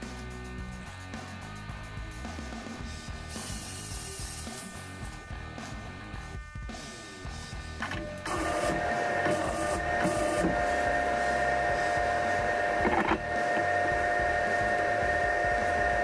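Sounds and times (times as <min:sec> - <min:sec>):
machine whine over hum: 0:04.0 - 0:16.0.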